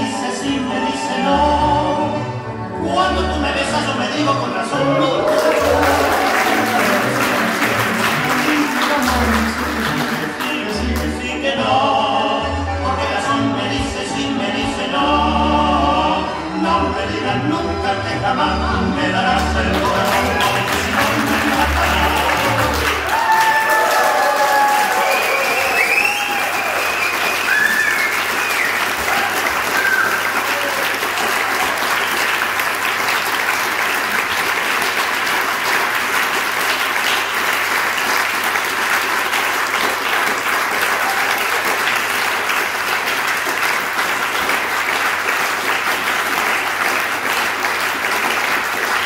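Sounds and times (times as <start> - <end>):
audience applauding: 4.8 - 11.3, 19.4 - 49.0.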